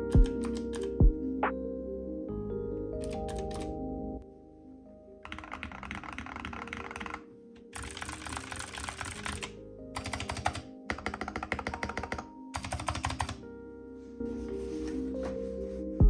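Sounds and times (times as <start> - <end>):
fast typing on mechanical keyboard: 0.0 - 0.9, 3.0 - 3.7, 5.2 - 13.4
soft background music: 0.0 - 16.0.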